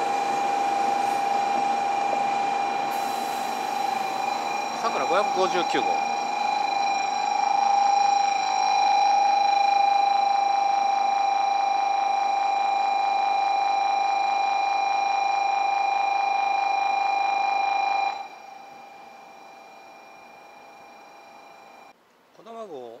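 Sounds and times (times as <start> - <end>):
electronic trilling bell: 2.9 - 21.9.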